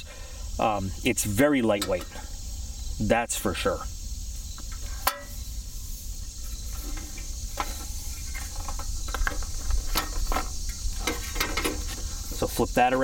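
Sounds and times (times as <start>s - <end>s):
insects chirring: 0.0s - 13.0s
camp stove clicks and knocks: 1.7s - 2.2s, 4.6s - 5.4s, 6.8s - 12.4s.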